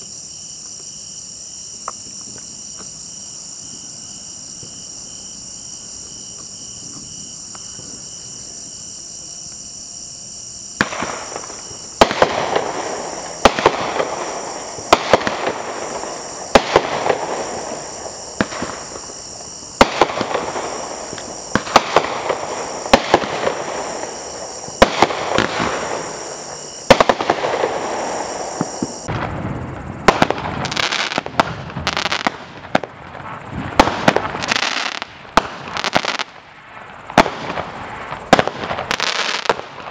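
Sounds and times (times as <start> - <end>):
insects chirping: 0.0 - 39.9
fireworks bangs: 10.7 - 39.9.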